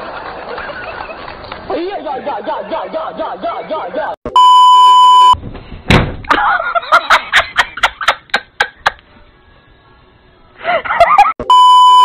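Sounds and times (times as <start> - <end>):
woman laughing: 6.3 - 9.0, 10.6 - 11.4.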